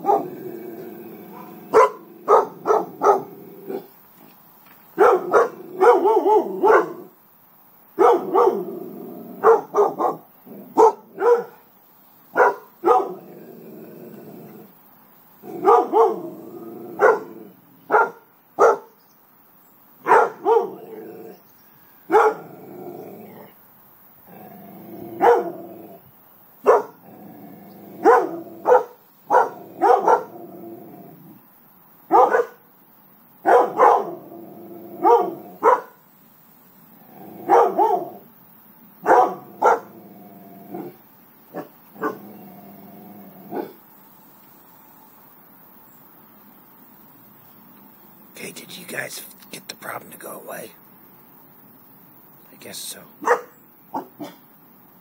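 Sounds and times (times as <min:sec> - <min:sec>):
dogs barking: 0:00.0 - 0:00.4, 0:01.3 - 0:03.9, 0:05.0 - 0:07.1, 0:08.0 - 0:08.7, 0:09.4 - 0:11.7, 0:12.3 - 0:13.3, 0:15.5 - 0:16.3, 0:16.9 - 0:18.9, 0:20.0 - 0:21.0, 0:22.1 - 0:22.5, 0:25.1 - 0:25.7, 0:26.6 - 0:27.0, 0:28.0 - 0:30.4, 0:32.1 - 0:32.6, 0:33.4 - 0:34.3, 0:35.0 - 0:36.0, 0:37.4 - 0:38.2, 0:39.0 - 0:40.0, 0:40.7 - 0:42.2, 0:53.2 - 0:54.5.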